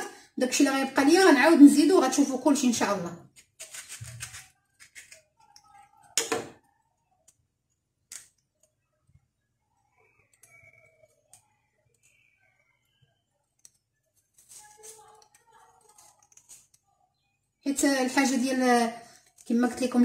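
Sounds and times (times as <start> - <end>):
knife cutting lemon: 3.4 - 5.3
handling of lemon: 14.2 - 16.8.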